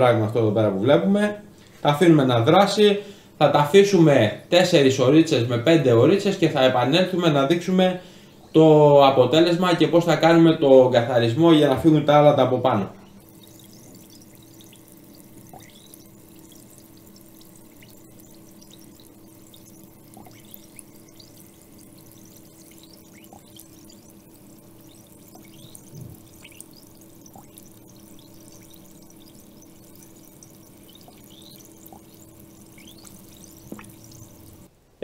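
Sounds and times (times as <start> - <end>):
low steady hum: 0.0 - 35.0
liquid fizzing and bubbling: 12.6 - 34.7.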